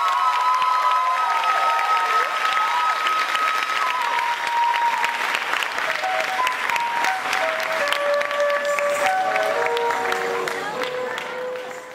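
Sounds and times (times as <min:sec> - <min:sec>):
audience applauding: 0:00.0 - 0:11.9
flute playing slow melody: 0:02.8 - 0:11.8.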